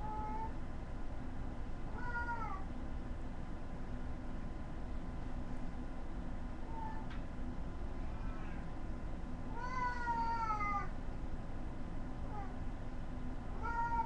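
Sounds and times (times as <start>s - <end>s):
cat meowing: 2.0s - 2.6s, 9.5s - 10.9s, 13.6s - 14.0s.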